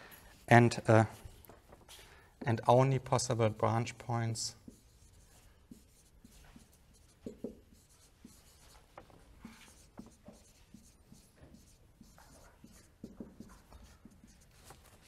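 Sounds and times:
marker squeaking on whiteboard: 4.6 - 15.0.

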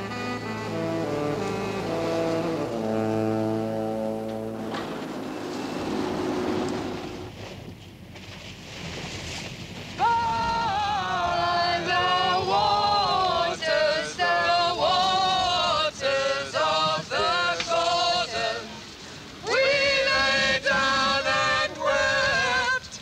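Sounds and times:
voices singing long notes: 0.0 - 4.8, 10.0 - 23.0.

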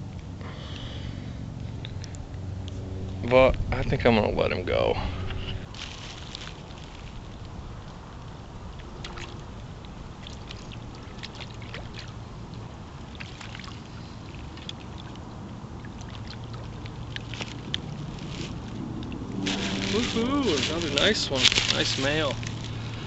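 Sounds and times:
low rumble of wind: 0.0 - 23.0
waves lapping against rocks: 5.7 - 23.0.

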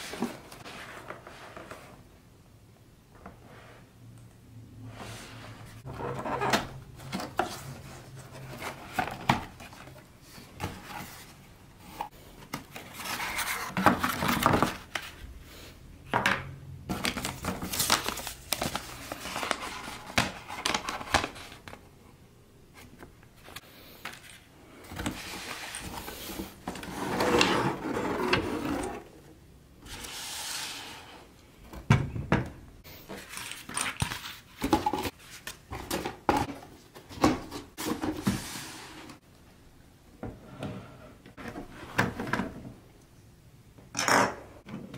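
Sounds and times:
paper crinkling: 16.9 - 21.6.

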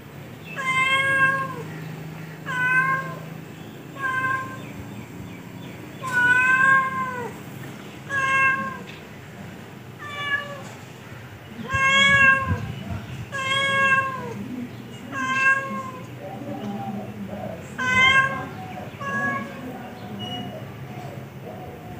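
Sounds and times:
cat meowing: 0.5 - 1.7, 2.4 - 3.3, 4.0 - 4.8, 6.0 - 7.4, 8.1 - 8.9, 10.0 - 10.7, 11.6 - 14.4, 15.1 - 16.1, 17.8 - 19.7.

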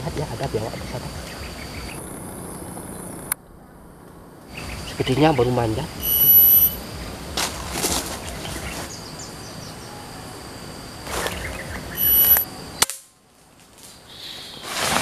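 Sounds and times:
high insect drone: 0.0 - 15.0
short shrill call: 6.0 - 6.8, 12.0 - 12.5.

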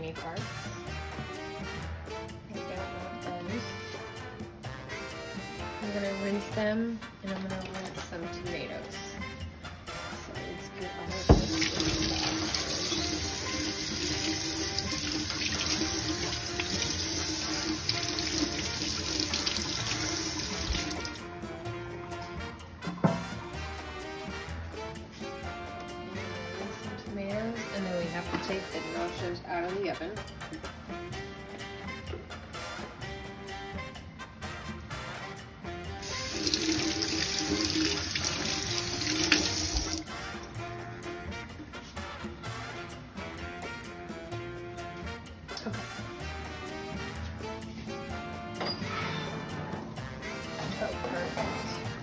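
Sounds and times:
background music: 0.0 - 52.0
faucet running into steel sink: 11.1 - 21.3, 36.0 - 40.1.

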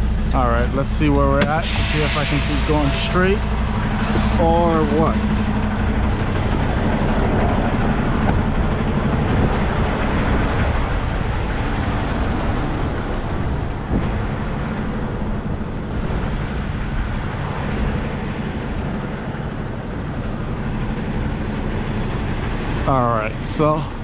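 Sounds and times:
diesel truck engine running: 0.0 - 24.0.

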